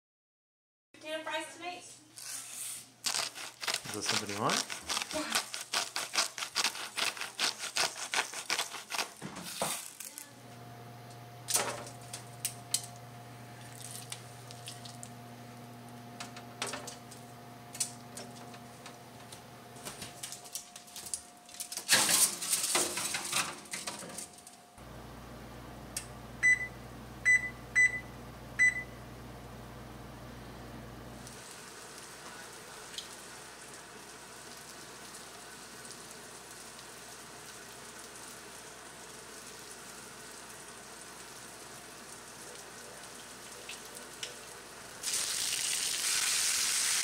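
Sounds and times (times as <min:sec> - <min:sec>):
oven control panel beeps: 0:26.4 - 0:29.0.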